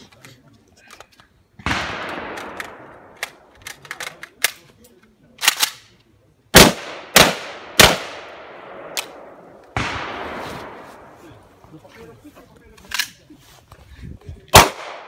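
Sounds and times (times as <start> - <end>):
pistol shots with echo: 1.6 - 3.4, 6.5 - 10.8, 14.5 - 15.0
gun handling clicks: 2.2 - 6.1, 12.7 - 13.2.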